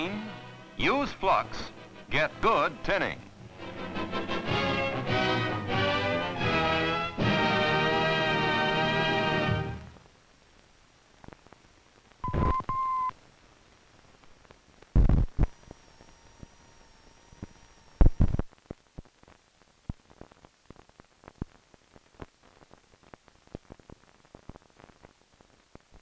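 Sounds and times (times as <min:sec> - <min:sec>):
film clicks and pops: 0:10.0 - 0:12.7, 0:17.3 - 0:26.0.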